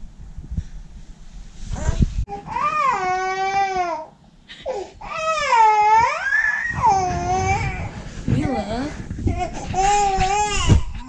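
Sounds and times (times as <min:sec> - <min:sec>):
bump: 0:06.7 - 0:10.9.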